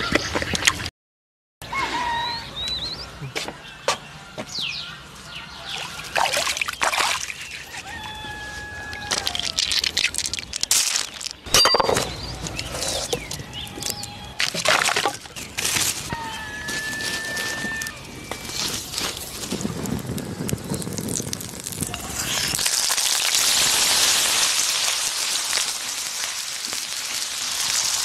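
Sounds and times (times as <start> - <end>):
birds calling: 1.7 - 21.0
snails rattling into a basket: 9.0 - 11.4
thin whistled notes: 16.1 - 19.7.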